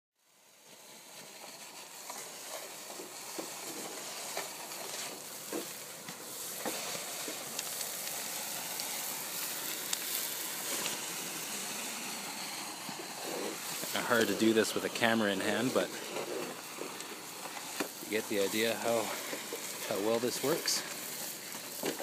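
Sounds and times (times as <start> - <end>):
gutter vacuum rushing hiss: 0.3 - 22.0
debris clicking and crackling: 12.6 - 22.0.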